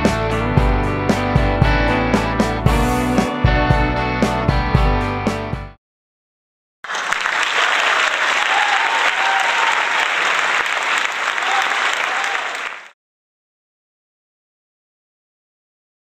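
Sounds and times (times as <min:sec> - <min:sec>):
crowd applauding: 0:06.8 - 0:13.0.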